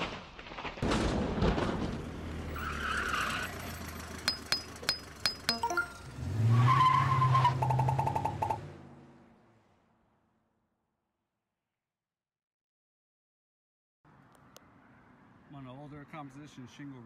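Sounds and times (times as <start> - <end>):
vehicle engine hum: 1.7 - 10.6
sharp metallic clinks: 4.3 - 6.0
steady high tone: 4.3 - 6.1.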